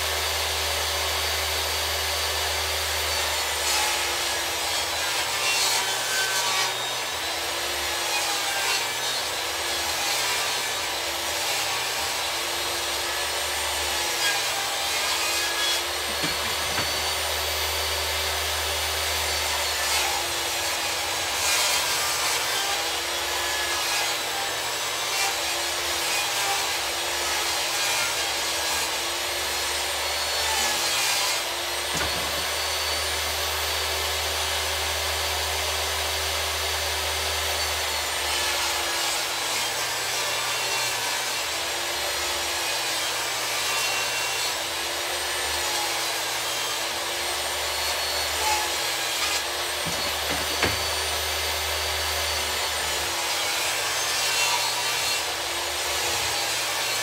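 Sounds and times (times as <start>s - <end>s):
table saw ripping wood: 0.0s - 57.0s
short knocks: 49.8s - 51.0s.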